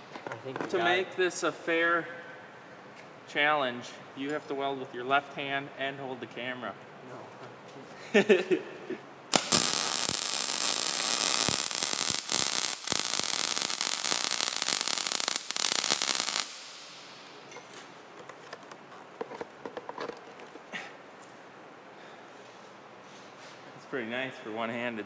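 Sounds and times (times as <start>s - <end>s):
welding arc crackling: 9.3s - 17.4s.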